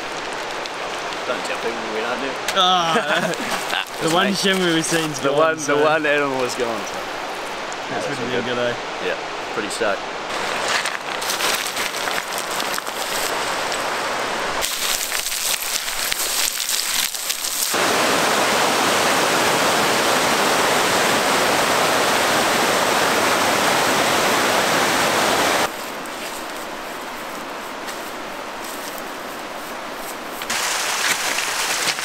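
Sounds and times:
stream rushing over boulders: 0.0s - 32.0s
footsteps on river stones: 3.0s - 5.4s, 10.3s - 14.0s, 14.6s - 17.7s, 25.7s - 32.0s.

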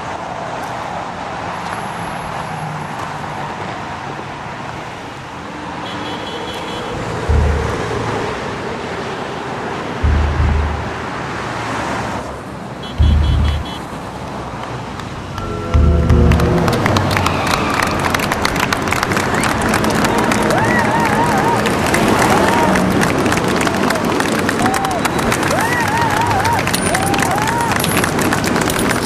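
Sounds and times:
city traffic noise: 0.0s - 29.0s
deep low thumps: 7.0s - 8.3s, 10.0s - 11.2s, 13.0s - 13.8s, 15.4s - 17.2s.

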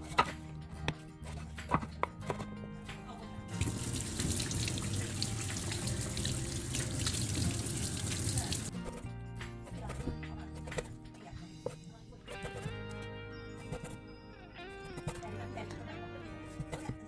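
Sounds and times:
knife chopping on wooden board: 0.0s - 2.5s.

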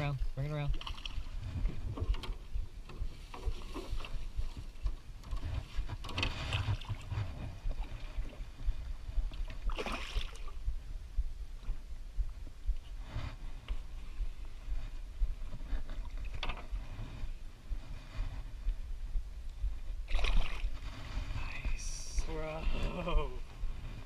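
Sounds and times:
steady low rumble: 0.0s - 24.0s
feet and gear knocking in boat: 0.7s - 10.7s.

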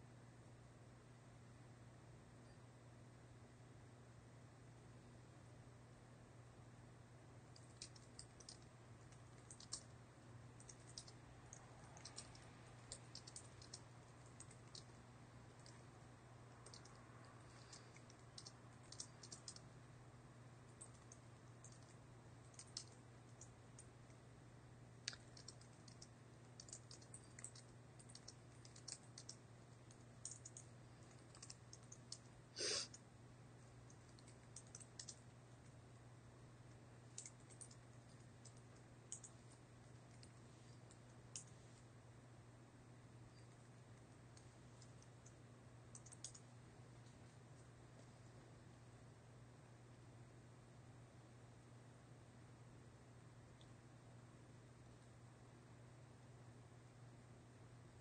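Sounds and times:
keyboard typing: 7.5s - 10.0s, 10.6s - 19.7s, 20.7s - 24.0s, 25.0s - 32.3s, 33.8s - 35.3s, 37.1s - 41.6s, 44.3s - 47.2s.

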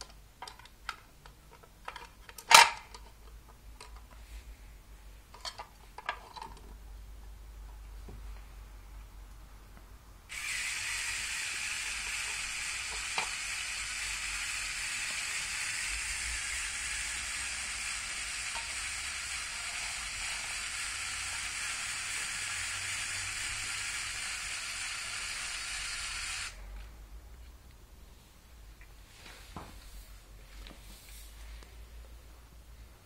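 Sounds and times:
toy crane motor whirring: 10.3s - 26.6s.

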